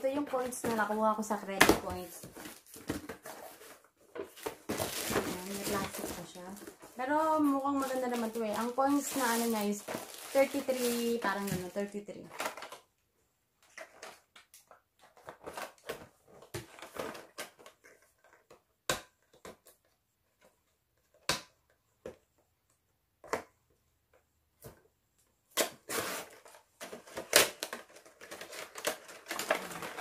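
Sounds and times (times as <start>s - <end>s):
plastic packaging crinkling: 0.1s - 12.8s, 25.8s - 30.0s.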